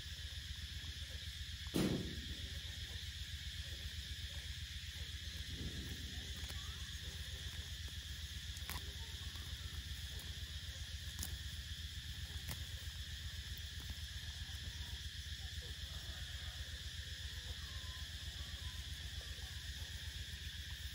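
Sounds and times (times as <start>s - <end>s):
insects chirring: 0.0s - 20.9s
low steady hum: 0.0s - 20.9s.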